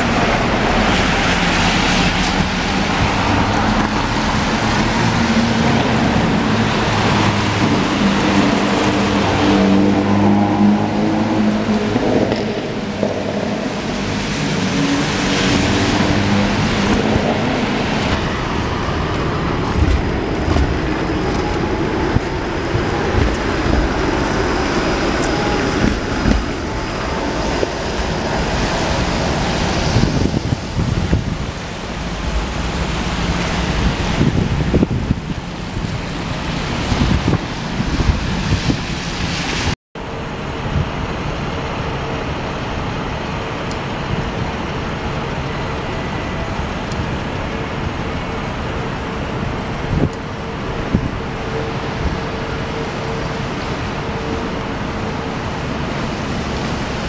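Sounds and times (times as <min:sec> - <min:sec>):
cars passing on wet pavement: 0:00.0 - 0:57.0
wind on microphone: 0:11.4 - 0:39.7, 0:49.4 - 0:57.0.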